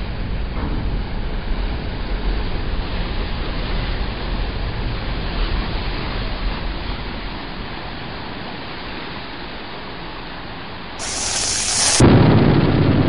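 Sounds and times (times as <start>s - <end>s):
lit fuse sizzling: 11.0s - 12.0s
steady rushing noise: 11.0s - 12.1s.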